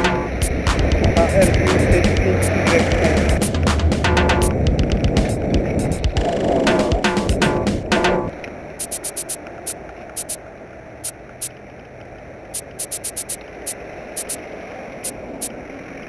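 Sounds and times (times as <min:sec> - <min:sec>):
sharp high-pitched ticks: 0:00.0 - 0:10.4, 0:12.5 - 0:14.4, 0:15.0 - 0:15.5
outdoor background hiss: 0:12.4 - 0:15.6.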